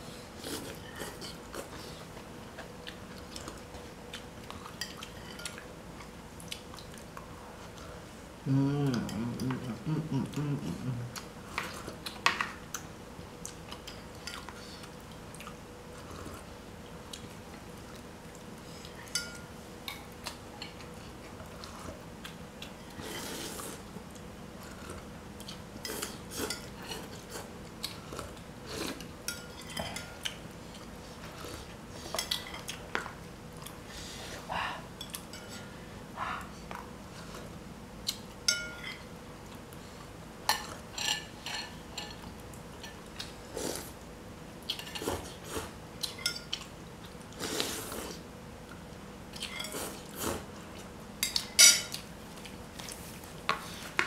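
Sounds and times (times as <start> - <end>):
cutlery clinking against bowls: 4.7 - 5.6, 19.0 - 19.5, 29.2 - 30.4, 35.0 - 35.6, 38.4 - 39.1, 40.5 - 42.2, 46.1 - 46.7, 49.4 - 50.0, 51.2 - 52.0.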